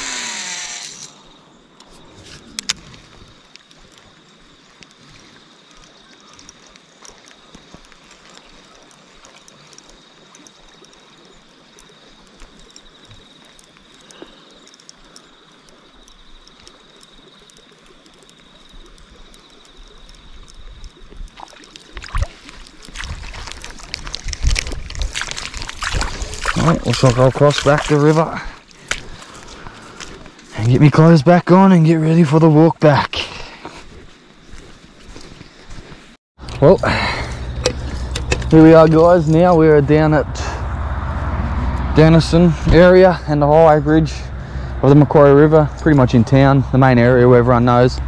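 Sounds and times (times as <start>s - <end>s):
river water running: 0.0s - 48.0s
splashing of person wading: 20.9s - 30.5s.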